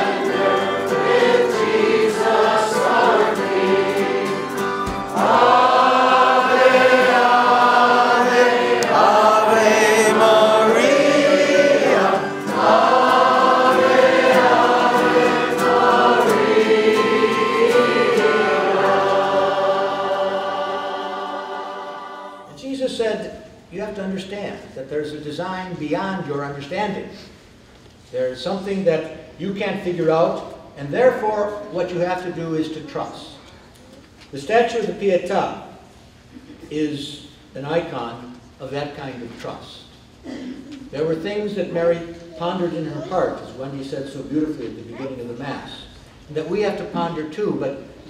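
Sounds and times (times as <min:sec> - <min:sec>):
congregation singing a hymn: 0:00.0 - 0:22.6.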